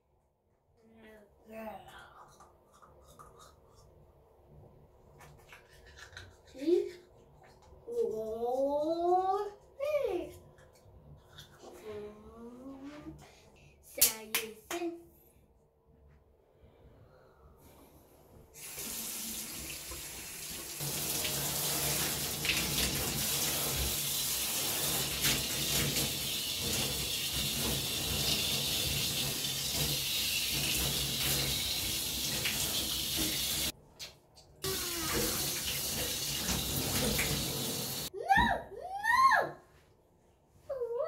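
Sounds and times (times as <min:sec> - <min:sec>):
shower spraying water: 0:18.5 - 0:38.1
child crying out: 0:38.2 - 0:39.6.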